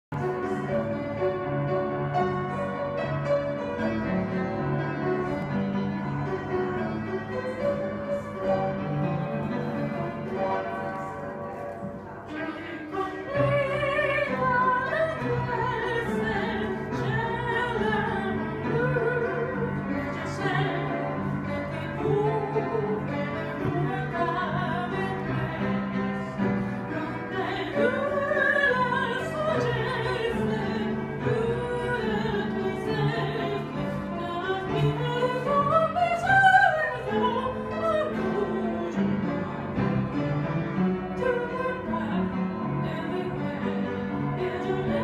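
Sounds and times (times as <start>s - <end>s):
upright piano playing: 0.1s - 45.0s
woman singing with vibrato: 7.0s - 39.9s, 41.1s - 45.0s.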